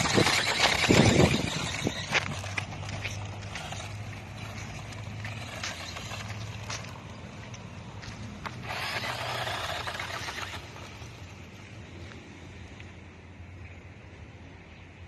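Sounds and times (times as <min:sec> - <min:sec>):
toy truck motor and tyres: 0:00.0 - 0:12.0.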